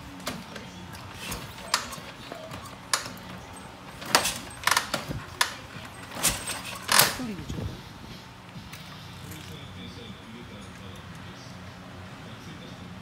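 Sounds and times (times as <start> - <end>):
kick-start lever clicks and clanks: 4.0 - 7.2.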